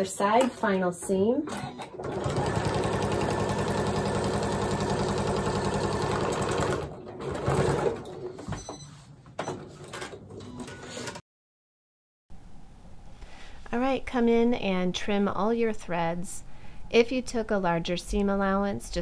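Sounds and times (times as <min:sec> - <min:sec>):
sewing machine stitching: 0:01.5 - 0:08.3.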